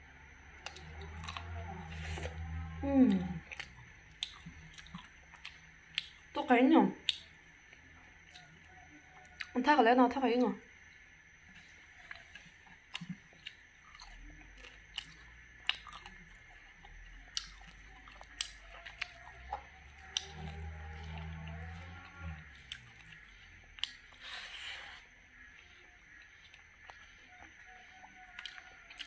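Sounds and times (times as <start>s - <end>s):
low hum: 0.0s - 29.0s
chewing with crisp crunches: 0.3s - 9.6s, 10.3s - 29.0s.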